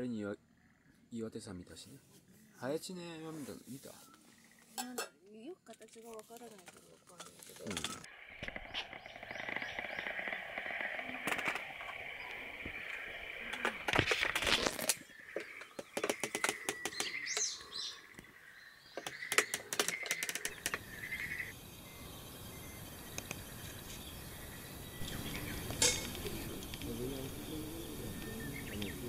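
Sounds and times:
birds chirping: 0:00.0 - 0:29.0
clicks and knocks of handling: 0:13.5 - 0:17.5.

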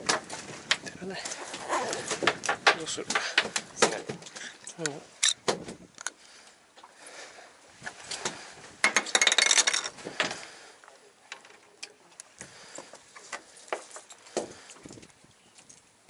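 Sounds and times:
fishing tackle clinking: 0:08.8 - 0:10.0.

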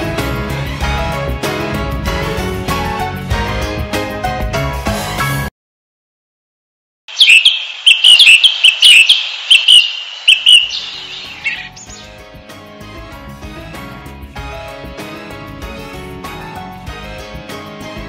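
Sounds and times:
music: 0:00.0 - 0:05.5, 0:11.3 - 0:18.0
small bird chirping: 0:07.1 - 0:12.2.

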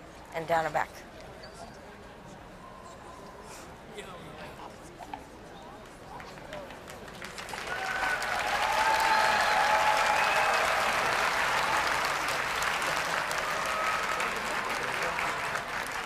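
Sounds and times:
audience applauding and cheering: 0:06.9 - 0:16.0
whoops: 0:07.6 - 0:12.2, 0:13.4 - 0:14.5.

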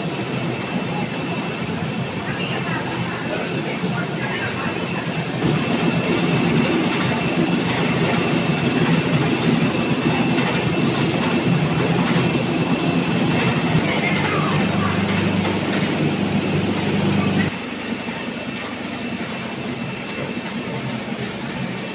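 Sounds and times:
motors and conveyors running: 0:00.0 - 0:21.9
low machine hum: 0:04.6 - 0:21.9.

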